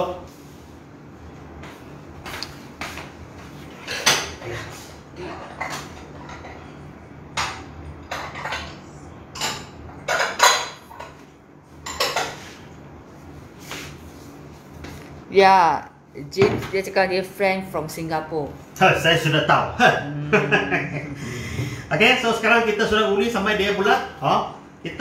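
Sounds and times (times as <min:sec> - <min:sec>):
dishes clinking and knocking: 0:03.8 - 0:06.7, 0:07.4 - 0:12.5, 0:16.4 - 0:16.8.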